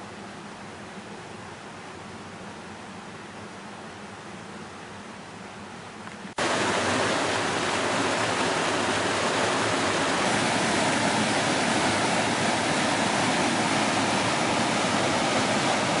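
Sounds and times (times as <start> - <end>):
waterfall rushing: 6.4 - 16.0.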